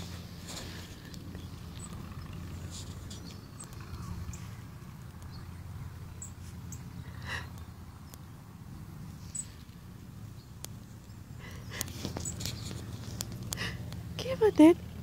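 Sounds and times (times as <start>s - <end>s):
faint high bird chirps: 5.2s - 7.0s, 9.2s - 9.6s
light rustling clicks: 10.6s - 14.1s.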